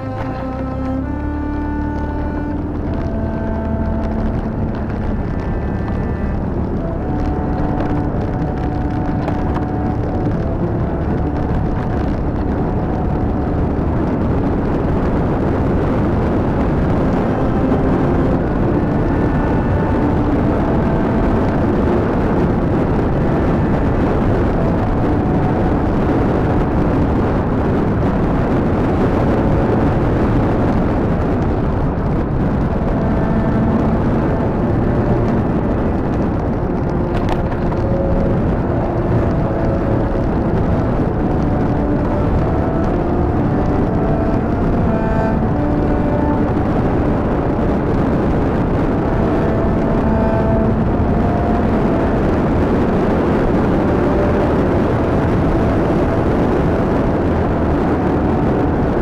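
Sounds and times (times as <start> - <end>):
vehicle engine and road rumble: 0.0 - 59.0.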